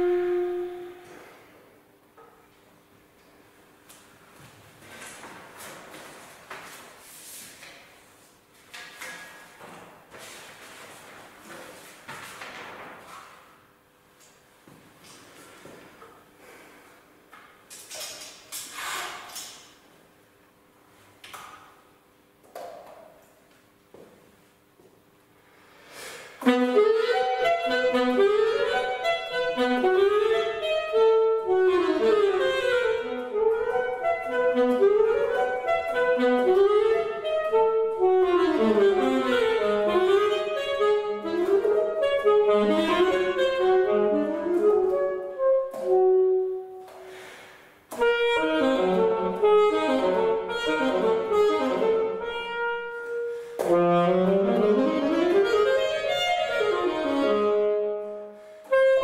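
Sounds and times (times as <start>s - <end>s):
alto saxophone running notes: 0.0s - 1.5s, 26.2s - 59.0s.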